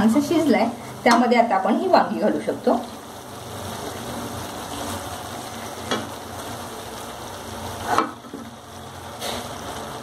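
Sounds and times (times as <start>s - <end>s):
masala sizzling in oil: 0.0s - 10.0s
vegetables knocking into pan: 5.8s - 6.2s, 7.8s - 8.6s.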